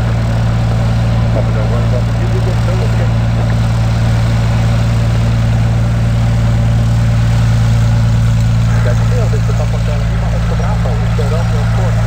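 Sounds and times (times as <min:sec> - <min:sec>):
aircraft engine and propeller: 0:00.0 - 0:12.0.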